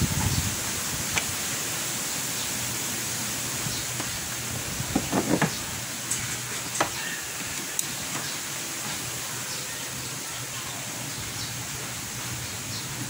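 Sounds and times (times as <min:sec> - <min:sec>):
background hiss: 0:00.0 - 0:13.0
knocks and scrapes on plastic: 0:04.9 - 0:05.6.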